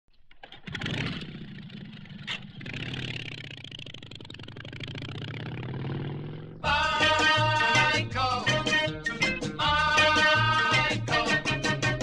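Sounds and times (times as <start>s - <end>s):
motorcycle engine revving: 0.3s - 7.0s.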